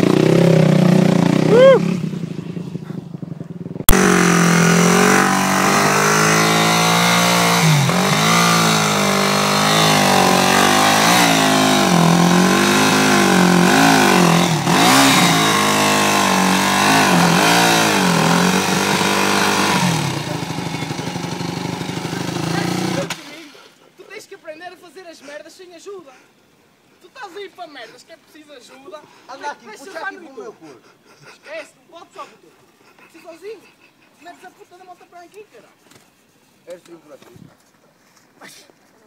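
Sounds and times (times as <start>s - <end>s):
motorcycle engine revving: 0.0s - 23.4s.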